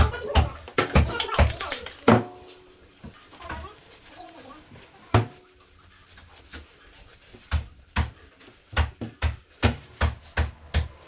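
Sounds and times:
cleaver chopping meat and bone: 7.5s - 11.0s.

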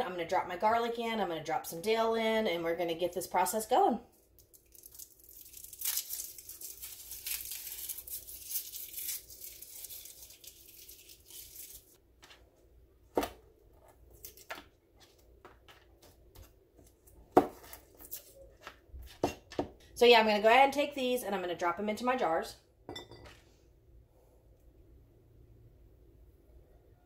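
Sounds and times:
garlic skins crackling and tearing: 4.3s - 12.0s, 14.1s - 14.6s.

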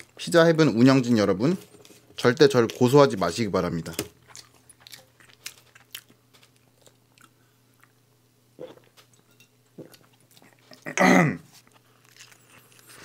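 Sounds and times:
person chewing: 4.0s - 8.0s, 8.6s - 13.0s.

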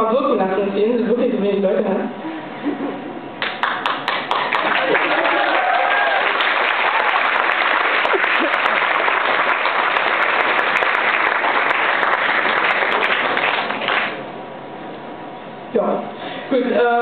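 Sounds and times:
audience applauding: 3.4s - 14.2s.

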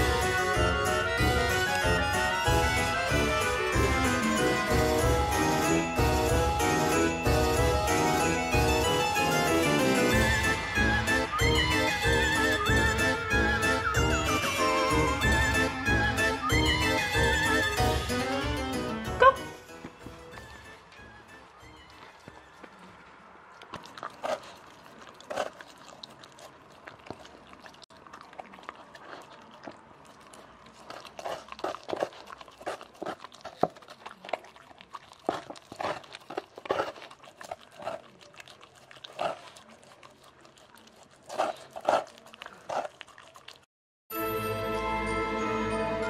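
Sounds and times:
music: 0.0s - 22.5s, 44.1s - 46.0s
dog licking and biting food: 23.5s - 43.7s.

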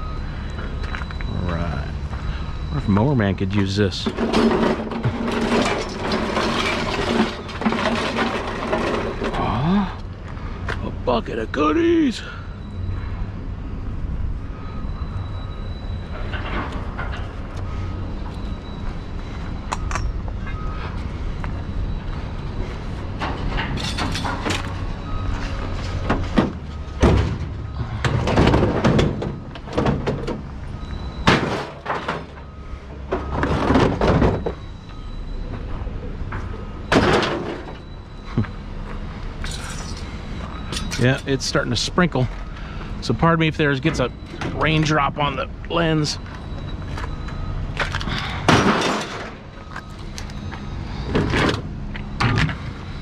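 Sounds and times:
scrap metal clattering and thuds: 3.7s - 9.5s, 22.7s - 35.0s, 36.3s - 38.0s, 46.5s - 52.8s
loud metal clanks: 31.1s - 32.5s, 48.4s - 49.4s.

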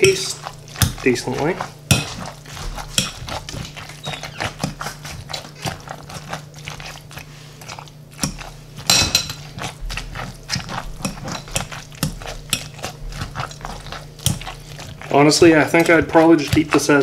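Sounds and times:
wet squishes of masher: 0.0s - 17.0s.

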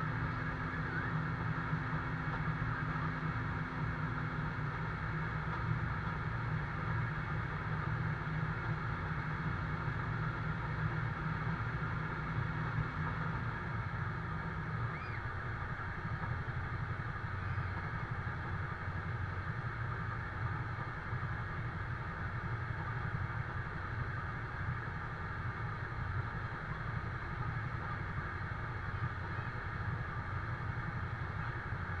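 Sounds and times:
fire engine pump engine humming: 0.0s - 32.0s.

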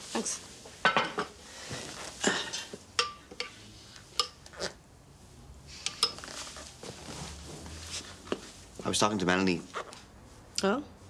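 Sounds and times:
metal spoon clinking on ceramic bowl: 3.0s - 3.6s.

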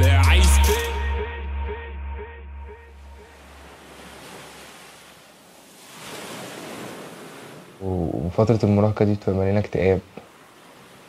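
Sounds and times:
surf breaking over rocks: 3.2s - 7.8s.

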